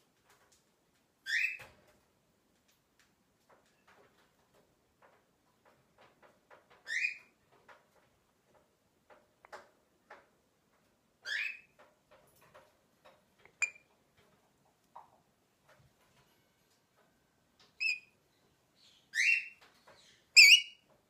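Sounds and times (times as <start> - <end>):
bird chirp: 6.9 - 7.3, 11.2 - 11.7, 17.8 - 20.8.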